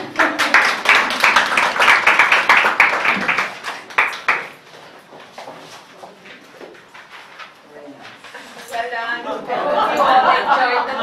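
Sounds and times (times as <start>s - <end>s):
small group applauding: 0.0s - 5.0s.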